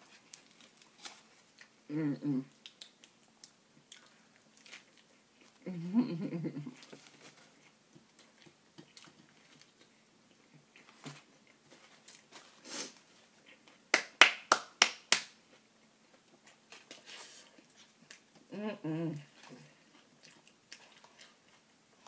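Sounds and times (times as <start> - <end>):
food wrappers clicking and rustling: 0.1 - 1.7
crackers snapping: 2.5 - 4.9.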